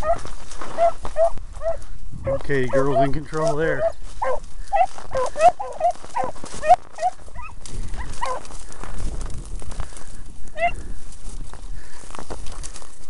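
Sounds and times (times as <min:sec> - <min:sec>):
hounds yelping: 0:00.0 - 0:08.7, 0:10.5 - 0:10.9.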